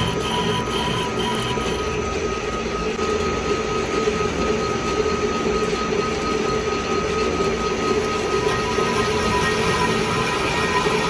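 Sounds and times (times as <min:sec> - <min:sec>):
metal lathe humming: 0:00.0 - 0:04.2, 0:07.7 - 0:11.0.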